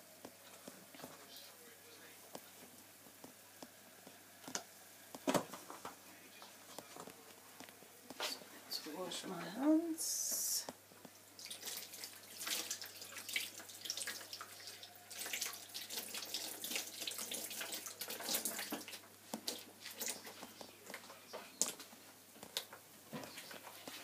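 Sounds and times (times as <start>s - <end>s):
water splashing in sink: 11.4s - 20.4s.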